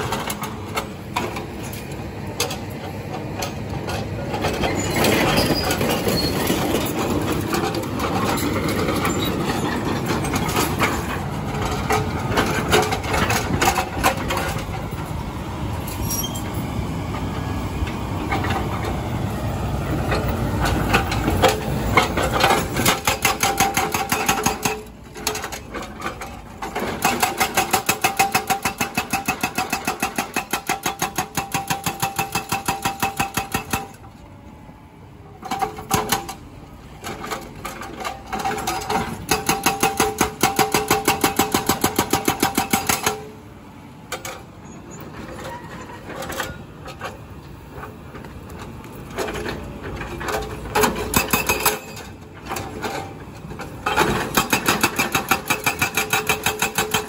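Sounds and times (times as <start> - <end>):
diesel engine running: 0.0 - 57.0
hydraulic breaker hammering concrete: 22.6 - 24.9, 26.8 - 34.0, 38.4 - 43.4, 53.9 - 57.0.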